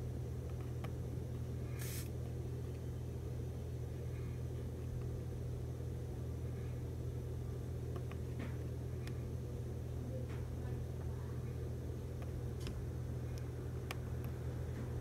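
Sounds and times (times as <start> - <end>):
steady low hum: 0.0 - 15.0
short burst of hiss: 1.7 - 2.1.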